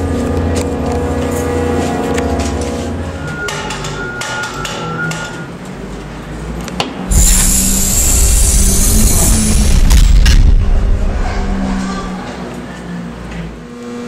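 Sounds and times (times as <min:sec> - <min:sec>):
thin steady tone: 0:07.1 - 0:10.0
loud rumbling hissing noise: 0:07.1 - 0:12.4.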